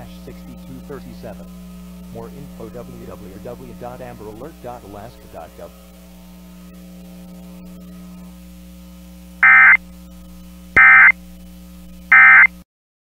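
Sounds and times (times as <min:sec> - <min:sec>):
steady low hum: 0:00.0 - 0:12.6
digital data tone bursts: 0:09.4 - 0:09.8, 0:10.8 - 0:11.2, 0:12.1 - 0:12.5.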